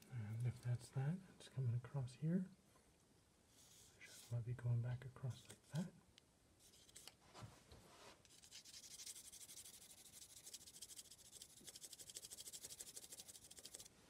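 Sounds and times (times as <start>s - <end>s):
pencil scratching on card: 8.3s - 13.9s.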